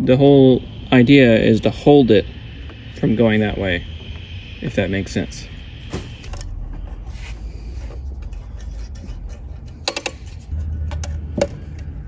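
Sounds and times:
wire rubbing and scraping: 0:05.9 - 0:10.8.

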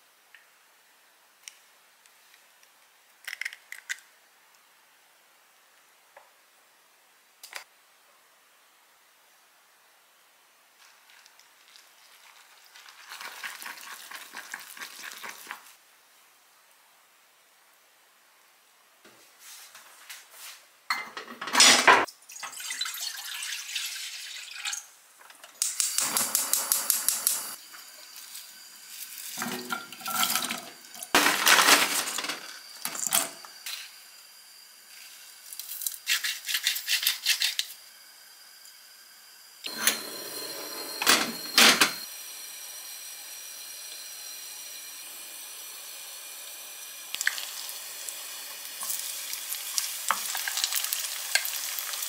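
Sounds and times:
clattering in a kitchen: 0:20.9 - 0:22.1, 0:25.2 - 0:27.6, 0:29.3 - 0:33.9, 0:39.7 - 0:42.0
liquid pouring into a pot: 0:22.2 - 0:24.9, 0:46.7 - 0:52.0
steady hiss: 0:25.6 - 0:39.7.

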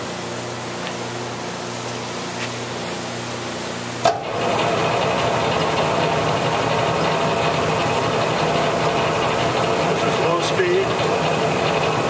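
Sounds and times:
bandsaw running: 0:04.1 - 0:12.0.

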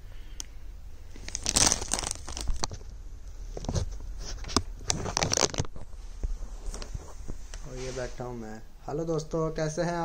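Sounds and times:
plastic bag crinkling: 0:01.1 - 0:02.9, 0:04.9 - 0:05.8.

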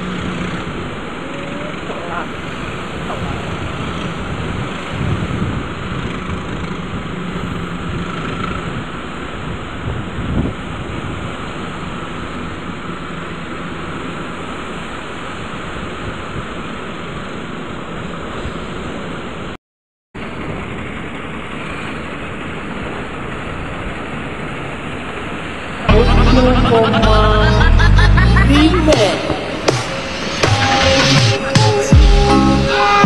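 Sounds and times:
wind on microphone: 0:00.0 - 0:07.2, 0:07.8 - 0:12.7
ocean surf breaking: 0:00.0 - 0:19.6, 0:20.2 - 0:33.0
loud music: 0:25.9 - 0:33.0.

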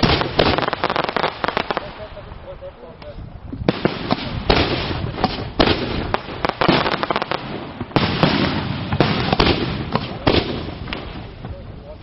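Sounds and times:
firework crackling hiss: 0:00.0 - 0:02.3
fireworks bursting with bangs: 0:00.0 - 0:02.4, 0:03.5 - 0:12.0.

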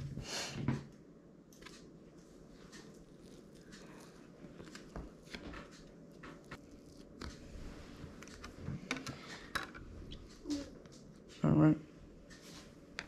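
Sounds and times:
scraper cutting brownie: 0:02.7 - 0:08.5.

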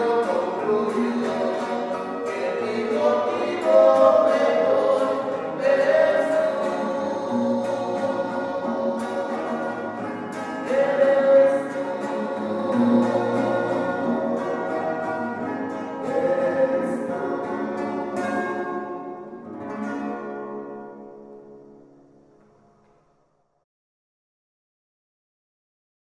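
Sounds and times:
men singing in harmony: 0:00.0 - 0:18.4
acoustic guitars: 0:00.0 - 0:23.3.

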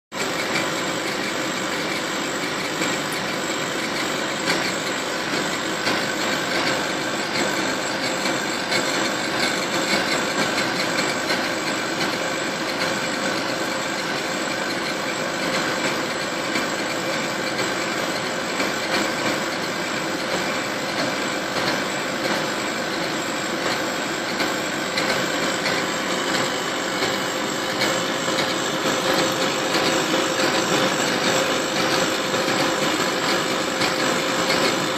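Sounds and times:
laser engraving machine whirring: 0:00.2 - 0:34.9.

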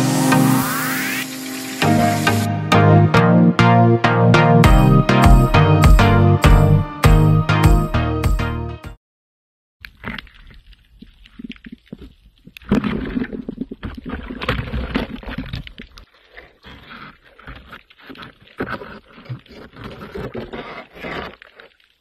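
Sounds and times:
small underwater clicks and knocks: 0:09.8 - 0:16.1.

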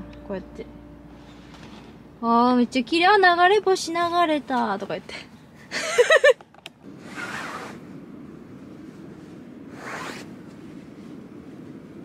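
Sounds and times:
steady low rumble: 0:00.0 - 0:12.0
person laughing: 0:05.7 - 0:06.4
tent fabric and bedding rustling: 0:06.8 - 0:12.0.

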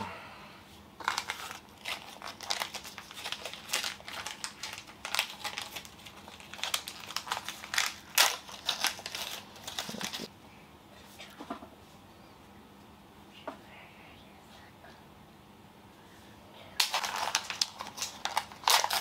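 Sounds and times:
plastic packaging crinkling: 0:01.0 - 0:10.3, 0:16.8 - 0:19.0.

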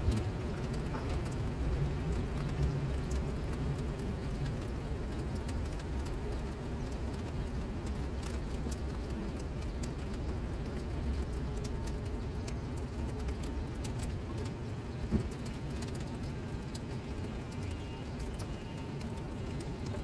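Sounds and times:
rain pattering into standing water: 0:00.0 - 0:20.0.

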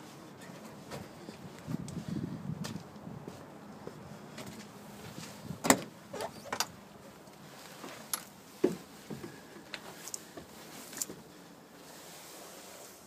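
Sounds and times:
knocks and clunks in truck cab: 0:05.6 - 0:06.0.

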